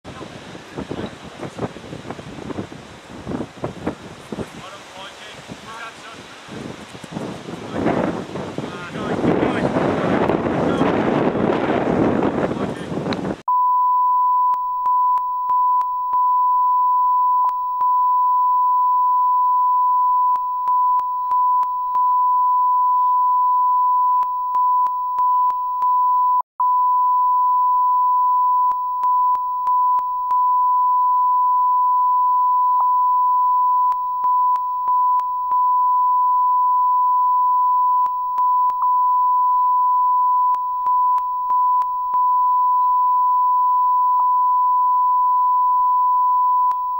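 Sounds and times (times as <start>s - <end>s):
electronic line-up tone: 13.5s - 46.9s.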